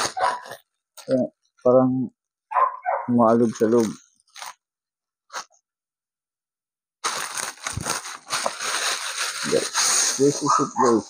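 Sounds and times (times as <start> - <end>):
plastic bag crinkling and rustling: 3.4 - 4.6, 7.0 - 11.0.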